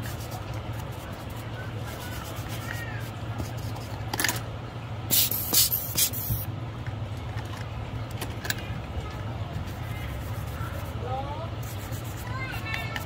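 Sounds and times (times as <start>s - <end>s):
bristle brush scratching: 0.0s - 3.9s, 5.1s - 6.4s, 9.6s - 13.0s
steady low hum: 0.0s - 13.0s.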